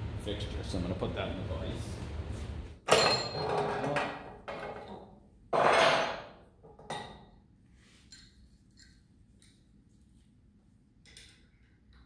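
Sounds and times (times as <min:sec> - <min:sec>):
metal tools clanking on metal: 0:02.9 - 0:04.9.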